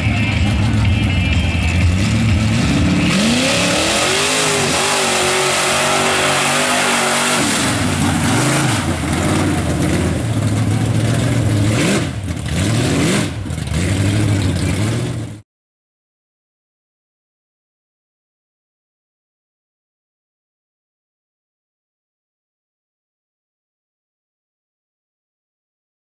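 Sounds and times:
truck engine revving hard: 0.0s - 15.4s.

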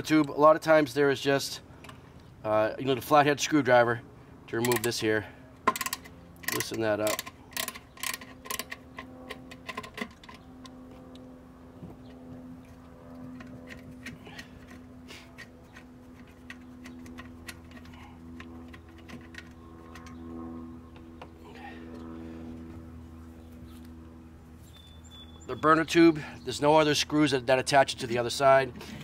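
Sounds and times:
faint steady hum: 0.0s - 29.0s
screwdriver ratchet clicks: 5.7s - 8.8s.

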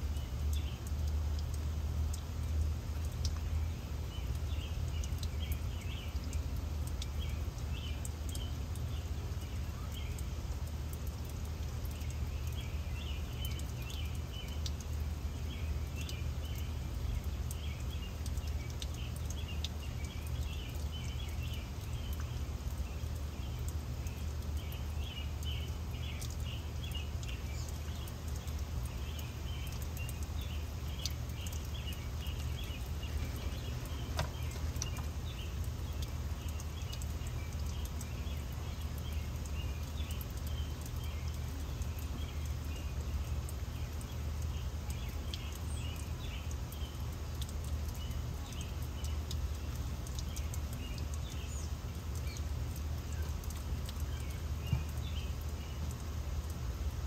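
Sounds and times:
garden water fountain: 0.0s - 57.0s
small birds chirping: 0.0s - 57.0s
wind: 0.0s - 57.0s.

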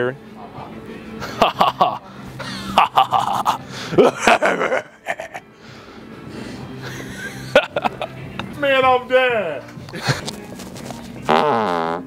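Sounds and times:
people laughing and gasping: 1.2s - 8.2s, 9.8s - 10.6s.

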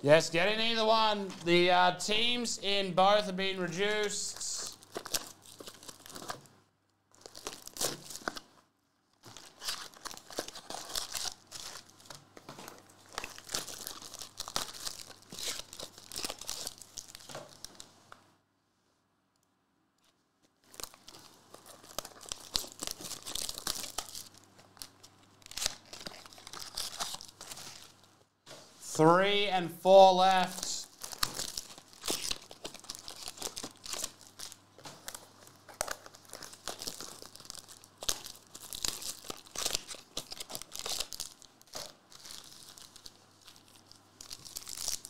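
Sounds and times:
foil wrappers tearing and crinkling: 3.8s - 6.5s, 7.1s - 8.5s, 9.2s - 17.9s, 20.6s - 28.0s, 30.4s - 45.0s.

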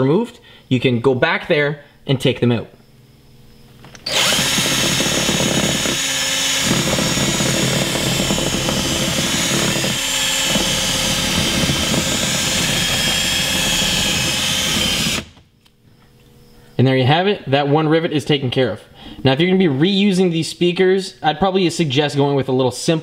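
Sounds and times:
cordless drill drilling metal: 4.0s - 15.4s.

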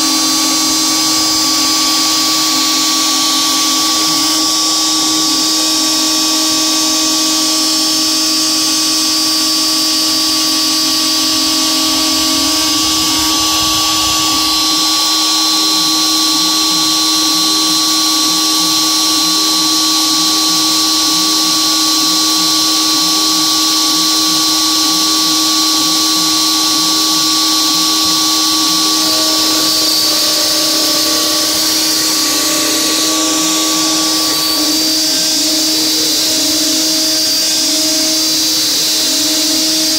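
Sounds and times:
endmill cutting metal: 0.0s - 39.9s
router motor whine: 0.0s - 39.9s.

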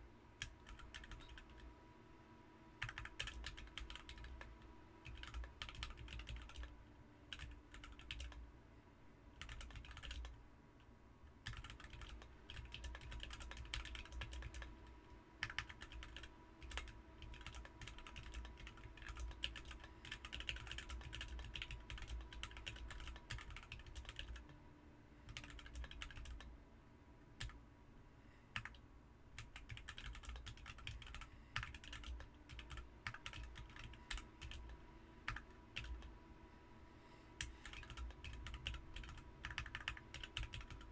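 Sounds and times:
mechanical keyboard typing: 0.4s - 1.7s, 2.8s - 8.4s, 9.4s - 10.4s, 11.4s - 24.5s, 25.3s - 26.5s, 28.6s - 28.8s, 29.4s - 36.1s, 37.4s - 40.9s.

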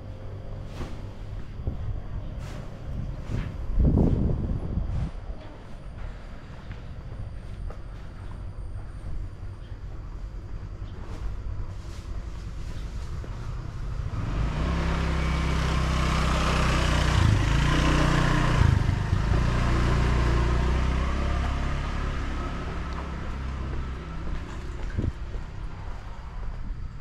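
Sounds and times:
motorbike passing by: 13.7s - 26.4s.

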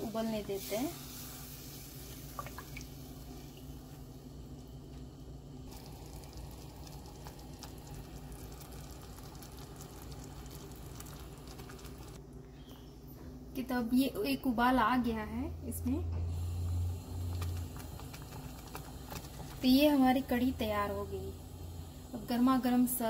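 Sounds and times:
steady low hum: 0.0s - 23.0s
curry bubbling in a pan: 5.7s - 12.2s.

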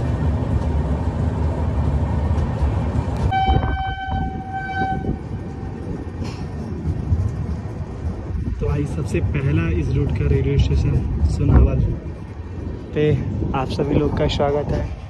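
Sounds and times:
train wheels rumbling on rails: 0.0s - 15.0s
locomotive horn blast: 3.2s - 5.8s.

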